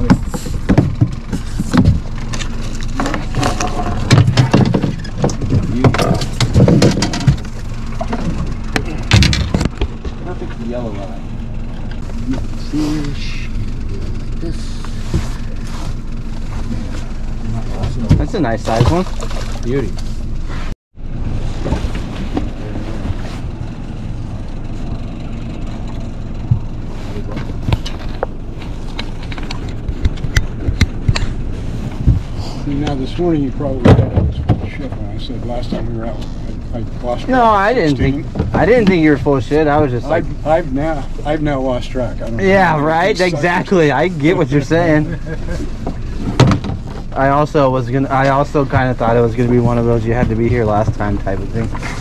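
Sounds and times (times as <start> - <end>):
sharp clicks and knocks: 0.0 - 10.5, 25.6 - 31.4
outboard motor idling: 0.0 - 52.0
steady low rumble: 0.0 - 52.0.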